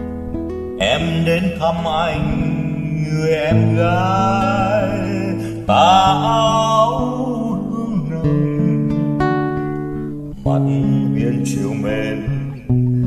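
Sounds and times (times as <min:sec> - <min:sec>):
plucked acoustic guitar: 0:00.0 - 0:13.0
person singing with vibrato: 0:00.8 - 0:09.7, 0:10.3 - 0:13.0.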